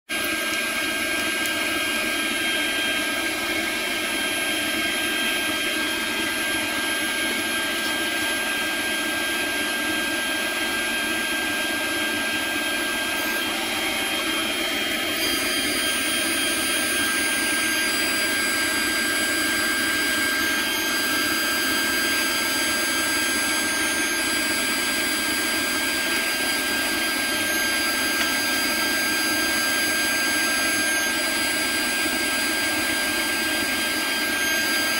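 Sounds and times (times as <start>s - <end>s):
end mill cutting plastic: 0.1s - 34.9s
router spindle whine: 0.1s - 34.9s.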